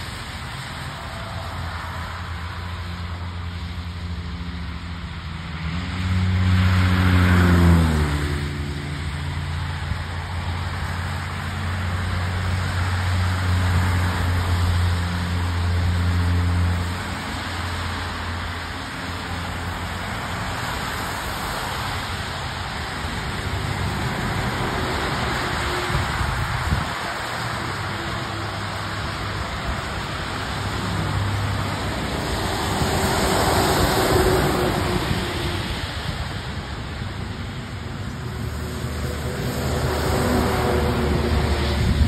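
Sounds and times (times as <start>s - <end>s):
low engine hum: 0.0s - 42.0s
tyres hissing on wet road: 0.0s - 42.0s
vehicle passing close: 0.0s - 42.0s.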